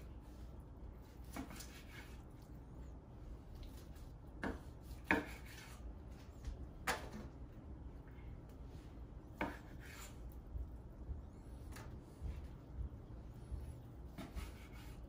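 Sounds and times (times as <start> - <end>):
knife cutting meat on wooden board: 1.0 - 2.4, 3.7 - 5.8, 9.4 - 10.2, 14.0 - 15.0.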